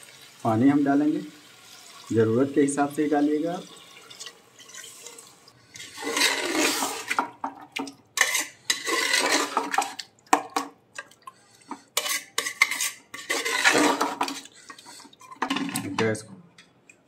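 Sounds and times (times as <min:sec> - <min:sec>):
water sloshing into pot: 0:03.3 - 0:16.0
ladle scraping metal pot: 0:05.8 - 0:07.6, 0:08.2 - 0:10.7, 0:11.6 - 0:16.0.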